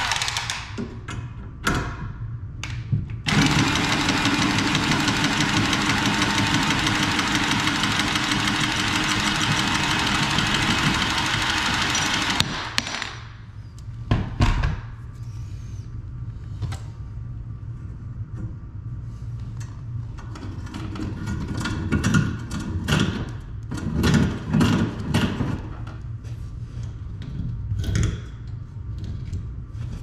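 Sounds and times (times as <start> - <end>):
tubing cutter spinning on pipe: 3.3 - 12.6.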